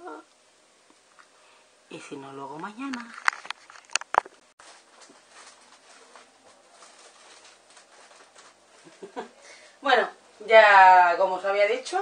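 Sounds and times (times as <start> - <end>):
faint soft rustles and ticks: 2.6 - 9.3.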